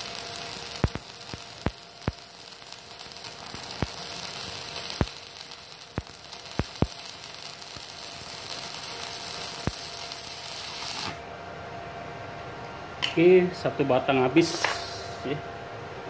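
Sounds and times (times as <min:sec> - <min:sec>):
welding arc sharp pops: 0:00.0 - 0:11.2
welding arc crackling sizzle: 0:00.0 - 0:11.3.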